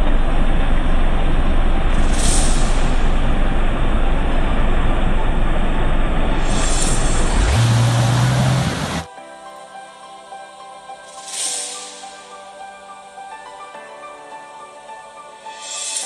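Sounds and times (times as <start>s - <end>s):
low engine drone: 0.0s - 9.1s
off-road vehicle engine rushing: 0.0s - 9.1s
quiet background music: 0.0s - 16.0s.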